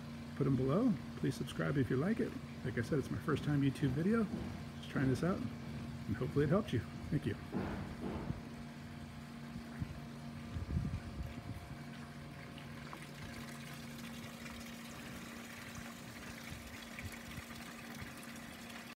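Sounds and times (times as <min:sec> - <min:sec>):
pool pump humming: 0:00.0 - 0:19.0
low bumps: 0:03.3 - 0:05.9, 0:07.0 - 0:08.6
water trickling and splashing: 0:09.2 - 0:19.0.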